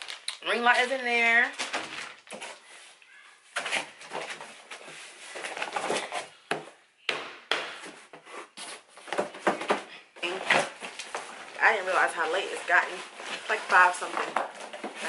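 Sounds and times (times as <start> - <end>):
cardboard scraping and rustling: 1.6 - 6.4, 7.9 - 15.0.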